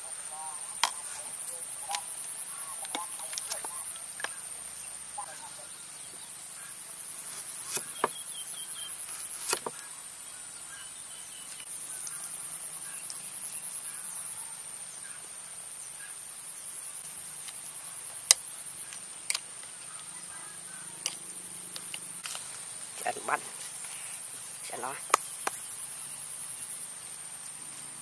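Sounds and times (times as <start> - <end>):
insects trilling: 0.0 - 28.0
knife cutting on wooden board: 7.3 - 8.2, 9.1 - 9.8.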